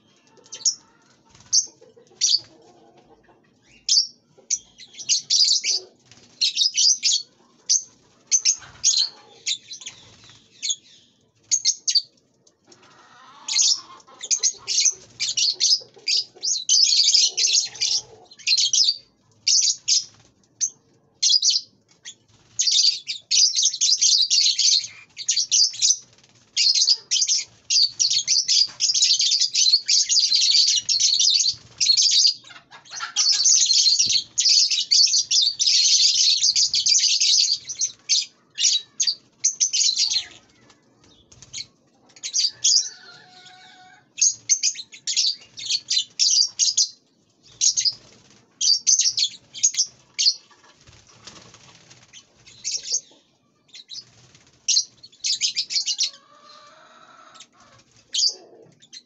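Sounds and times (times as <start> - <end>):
parrots chattering: 32.1 - 40.8.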